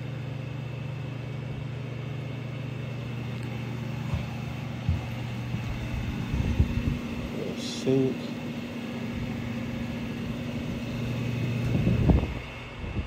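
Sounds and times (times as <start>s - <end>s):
ventilation fans humming: 0.0s - 13.0s
soft thumps: 4.0s - 5.8s.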